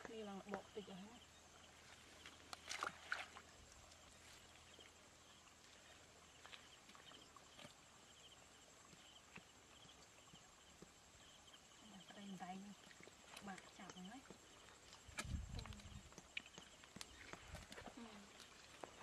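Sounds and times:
soft clicks of hands in mud: 0:02.2 - 0:04.1, 0:12.9 - 0:19.0.

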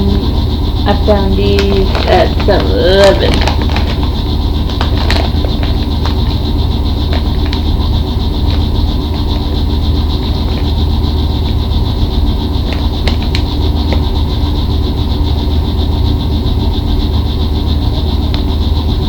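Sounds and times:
steady low hum: 0:00.0 - 0:19.0
foil chip bag crinkling: 0:01.3 - 0:11.6, 0:12.6 - 0:14.2.

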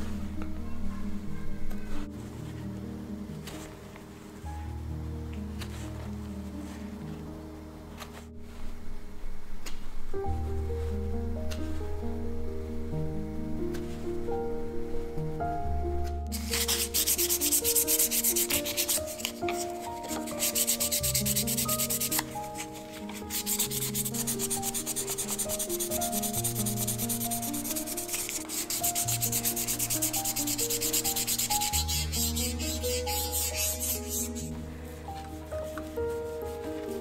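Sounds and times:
background music: 0:00.0 - 0:37.0
hand sanding wood: 0:16.3 - 0:34.6, 0:35.6 - 0:37.0.

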